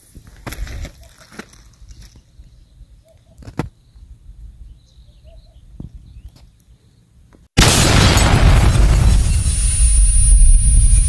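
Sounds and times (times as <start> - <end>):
wind rumbling on microphone: 8.6 - 11.0.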